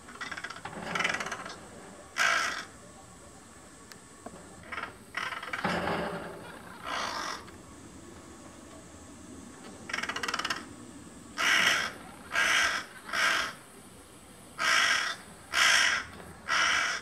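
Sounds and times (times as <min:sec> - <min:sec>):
crow calling: 0:00.0 - 0:02.9, 0:04.5 - 0:07.7, 0:09.7 - 0:13.9, 0:14.5 - 0:17.0.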